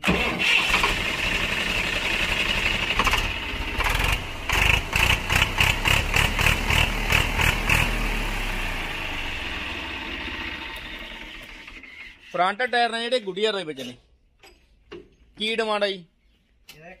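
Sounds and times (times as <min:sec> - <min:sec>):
diesel tractor engine running: 0:00.0 - 0:12.3.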